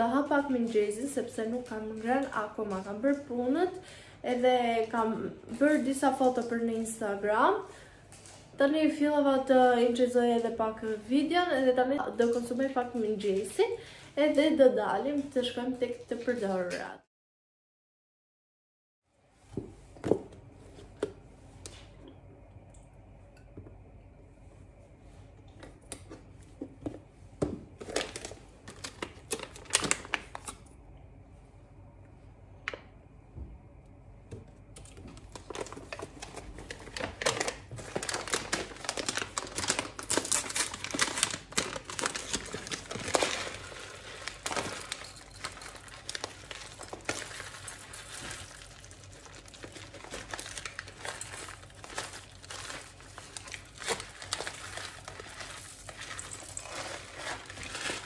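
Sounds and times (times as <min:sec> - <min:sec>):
wrapping crinkling: 0:27.8 - 0:30.6, 0:34.8 - 0:58.0.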